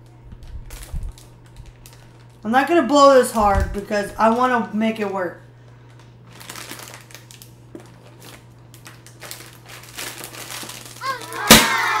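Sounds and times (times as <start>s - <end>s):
foil balloon crinkling: 0.0s - 5.1s, 5.7s - 12.0s
balloon bursting pop: 11.4s - 12.0s.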